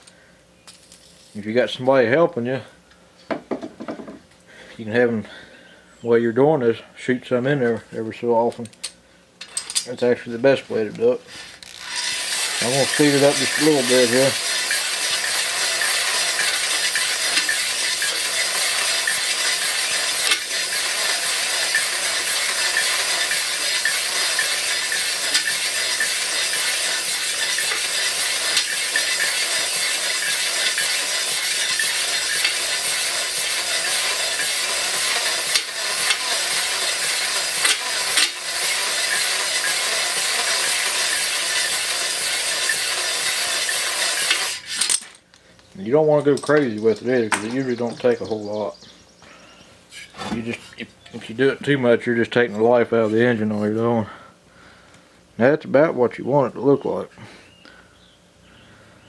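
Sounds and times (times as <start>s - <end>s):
hone stones grinding cylinder wall: 9.4s - 45.1s, 45.8s - 48.7s, 50.0s - 53.8s
electric drill running: 11.3s - 45.0s.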